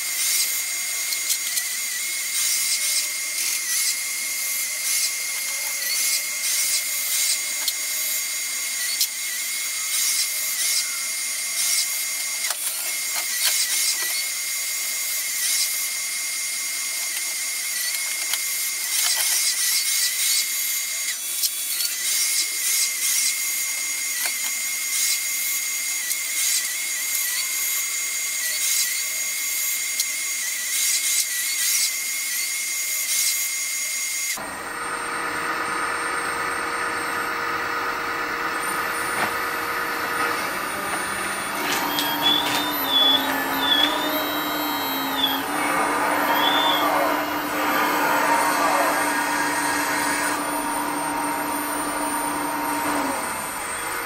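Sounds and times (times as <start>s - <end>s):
hydraulic whine: 34.3s - 54.0s
low mechanical running: 34.4s - 54.0s.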